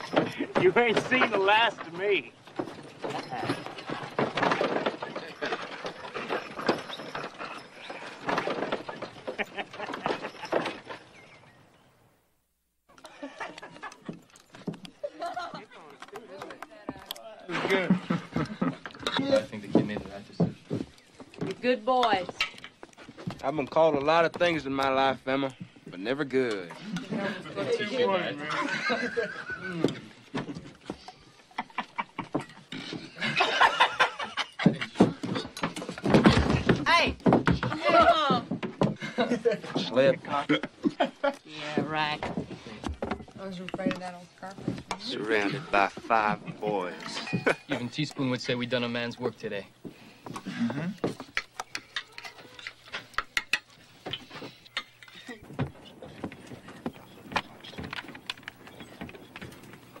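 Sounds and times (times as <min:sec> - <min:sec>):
voices: 0:00.0 - 0:10.9
cutlery clinking against plates: 0:47.0 - 0:48.2.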